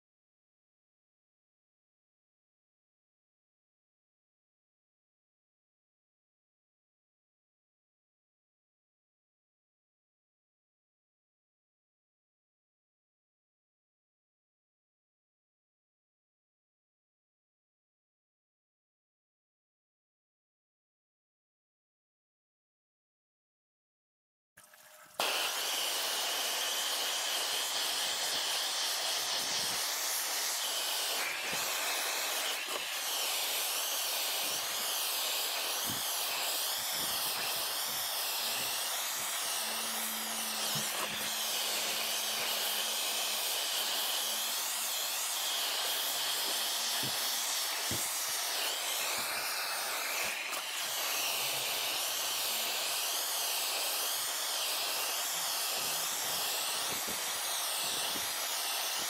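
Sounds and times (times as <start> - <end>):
blowtorch flame hissing: 25.2 - 59.0.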